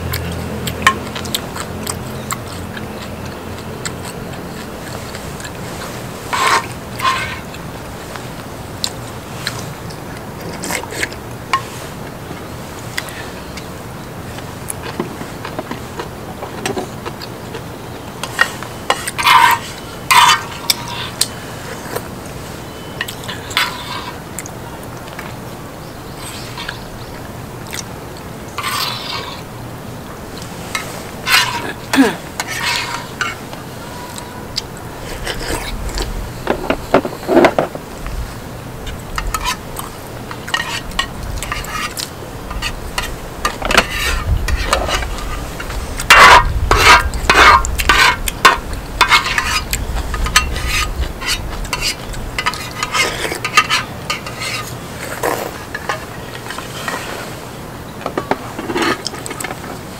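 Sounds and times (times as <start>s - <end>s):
spoons clinking against bowls: 18.2s - 21.3s, 30.6s - 34.4s, 39.2s - 45.0s, 45.6s - 54.8s.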